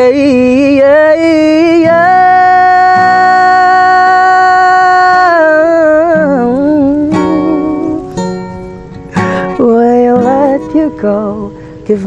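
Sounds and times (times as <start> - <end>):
man singing: 0.0 - 8.1, 9.2 - 12.0
acoustic guitar strums: 0.0 - 12.0.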